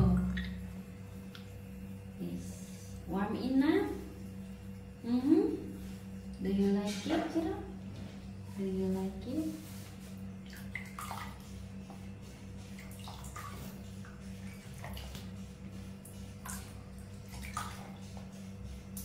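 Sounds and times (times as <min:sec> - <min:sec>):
water splashing and dripping: 0:00.0 - 0:01.6, 0:10.4 - 0:12.0, 0:12.6 - 0:19.0
steady low hum: 0:00.0 - 0:19.0.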